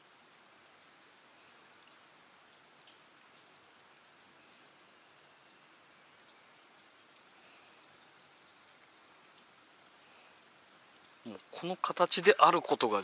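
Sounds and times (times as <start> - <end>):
faint outdoor hiss: 0.0 - 13.0.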